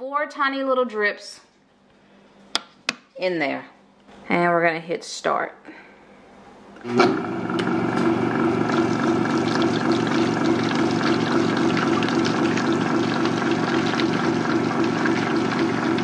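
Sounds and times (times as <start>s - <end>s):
blender motor running: 6.8s - 16.0s.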